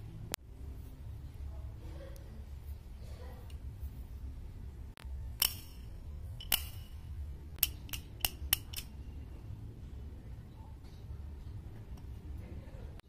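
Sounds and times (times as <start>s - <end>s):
sharp clicks: 7.5s - 9.0s.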